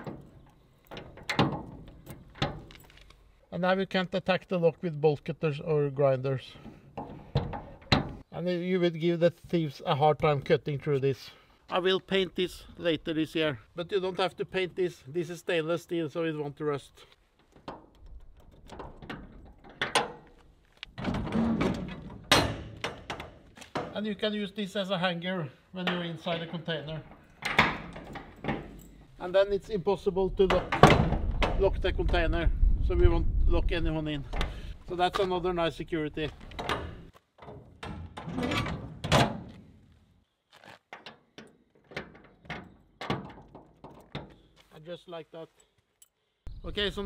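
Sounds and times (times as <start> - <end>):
metal door clanging shut: 0.0 - 2.7, 7.0 - 8.2, 18.6 - 20.2, 21.0 - 24.0, 25.9 - 29.0, 30.4 - 31.8, 36.5 - 39.6, 41.9 - 44.4
padlock clicking and clunking: 0.0 - 3.2, 17.5 - 24.0, 27.1 - 29.1
metal door rattling scrape: 21.0 - 23.4, 36.6 - 39.5.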